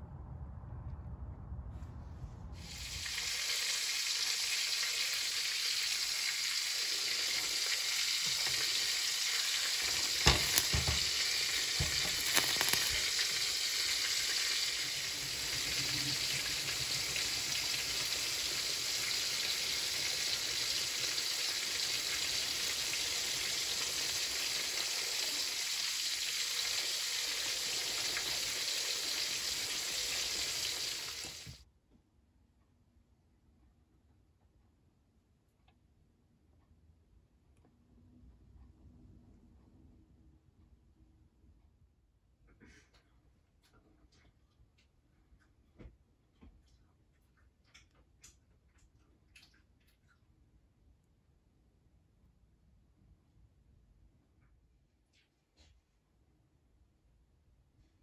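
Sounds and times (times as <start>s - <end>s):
eggplant skins sizzling: 2.6s - 31.6s.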